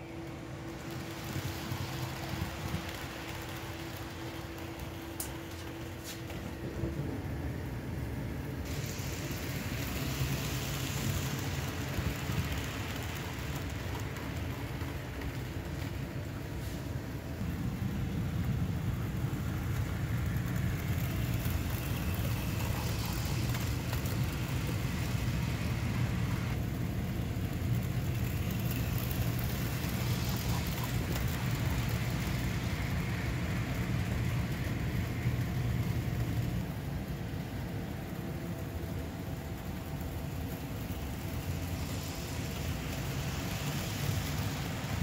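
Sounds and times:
model train motors whirring: 0.0 - 45.0.

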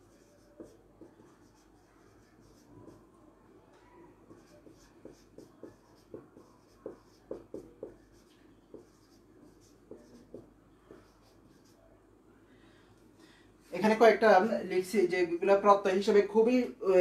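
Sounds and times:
marker pen on whiteboard: 0.0 - 3.1, 3.8 - 11.9.

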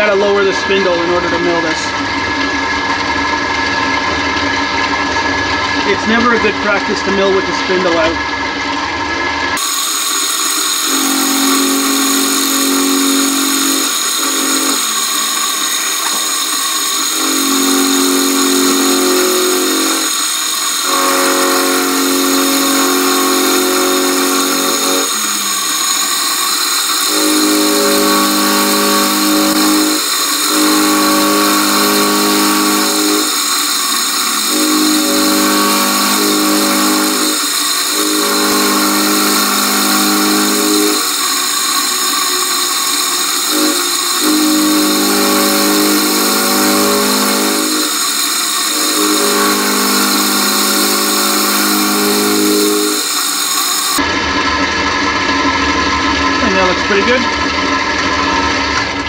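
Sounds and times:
cutter drone on metal: 0.0 - 8.7, 9.4 - 54.5
milling machine motor whine: 0.0 - 59.0.

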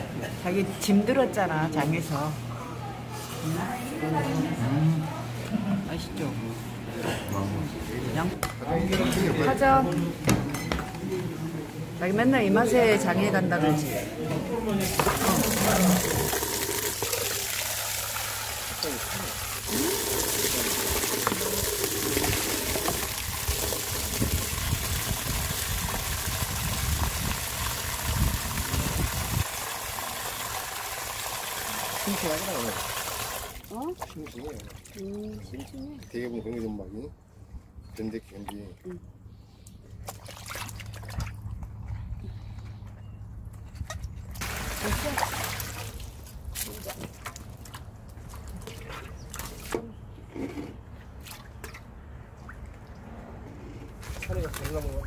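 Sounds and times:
water pouring into bowl: 14.8 - 35.0
water splashing in steel bowl: 14.8 - 35.0
short sharp splashes: 40.0 - 41.4.

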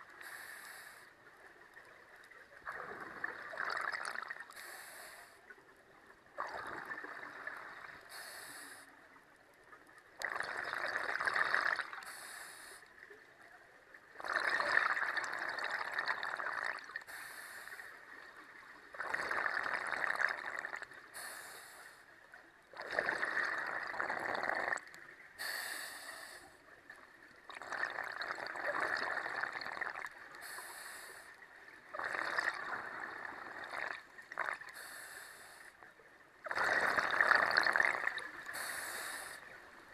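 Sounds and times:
regulator inhalation hiss: 0.2 - 1.1, 4.6 - 5.3, 8.1 - 8.9, 12.0 - 12.8, 17.1 - 17.9, 21.2 - 22.0, 25.4 - 26.5, 30.4 - 31.4, 34.7 - 35.7, 38.5 - 39.4
exhaled bubbles rushing: 2.7 - 4.5, 10.2 - 12.0, 14.2 - 17.0, 18.9 - 20.8, 22.8 - 24.9, 27.5 - 30.1, 31.9 - 34.6, 36.5 - 38.5.

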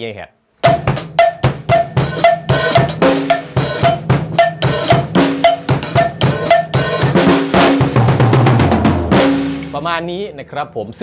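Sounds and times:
cowbell struck: 0.6 - 7.2
drum kit playing: 0.6 - 10.2.

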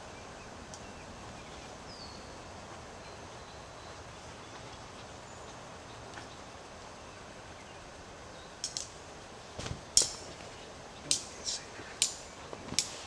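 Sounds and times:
faint bird chirps: 0.0 - 8.6
soft outdoor hiss: 0.0 - 13.0.

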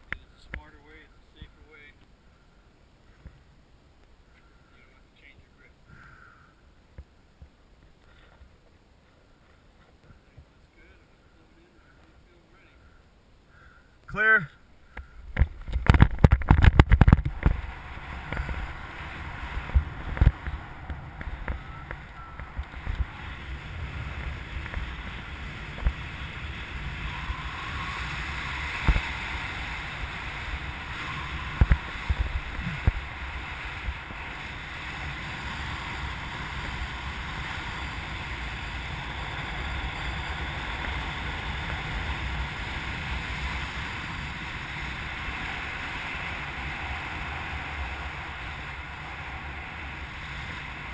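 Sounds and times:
wind rushing over microphone: 15.0 - 50.9.

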